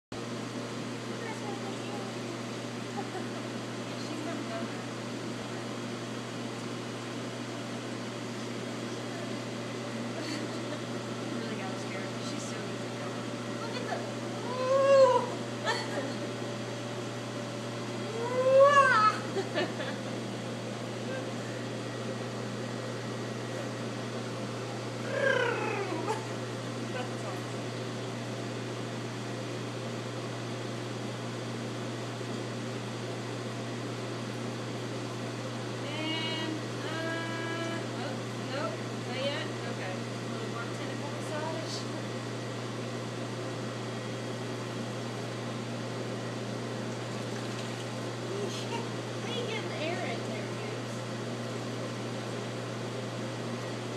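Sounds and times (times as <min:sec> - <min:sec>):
mechanical hum and hiss: 0:00.1 - 0:53.9
person exclaiming: 0:14.4 - 0:15.9, 0:18.1 - 0:19.3, 0:25.0 - 0:26.3.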